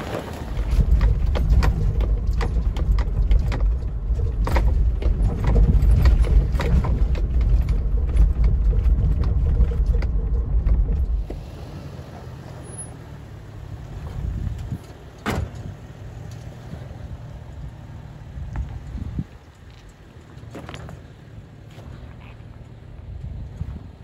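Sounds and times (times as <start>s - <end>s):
car cabin rumble: 0.0s - 11.6s
knocks and rattles: 0.5s - 11.3s.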